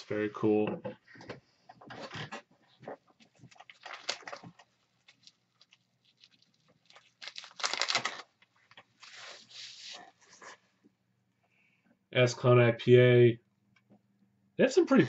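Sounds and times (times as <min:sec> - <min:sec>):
plastic packaging crinkling: 0:03.2 - 0:09.6.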